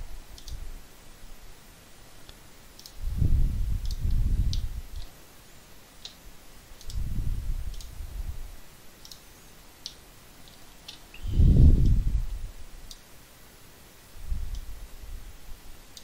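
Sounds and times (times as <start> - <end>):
computer mouse clicking: 0.3 - 0.6, 2.2 - 3.0, 3.8 - 5.2, 6.0 - 6.2, 6.8 - 7.0, 7.7 - 8.0, 9.0 - 11.1.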